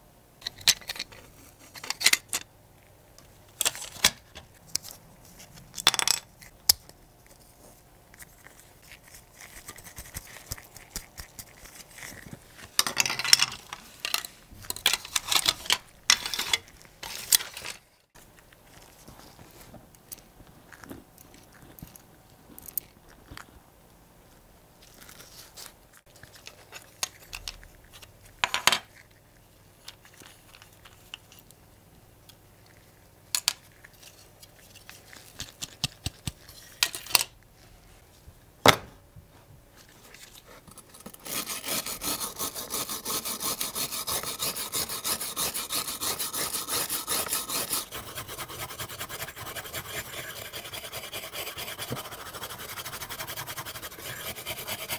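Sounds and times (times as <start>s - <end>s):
wire brush scrubbing on metal: 41.1s - 54.9s.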